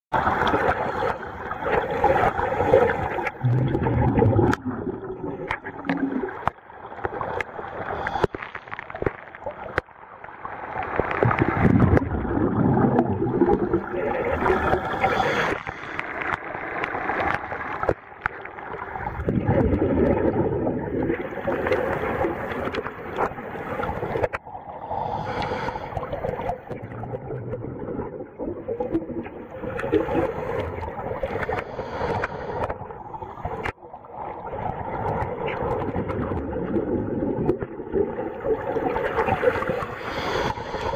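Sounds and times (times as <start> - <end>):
bubbles gurgling: 0.1 - 40.9
divers breathing through regulators: 7.9 - 8.7, 14.4 - 16.4, 25.0 - 26.4, 31.3 - 32.8, 39.7 - 40.9.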